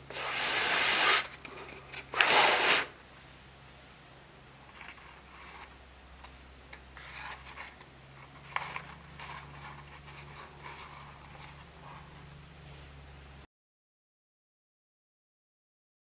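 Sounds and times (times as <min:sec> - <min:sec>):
paper rustling and crinkling: 0:07.0 - 0:12.0.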